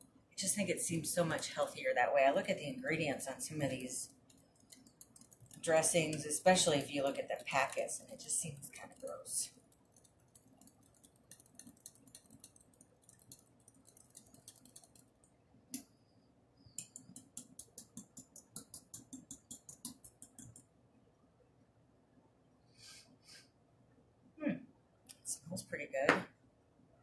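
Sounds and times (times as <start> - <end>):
utensil stirring in glass jar: 3.0 - 15.2, 16.7 - 20.7.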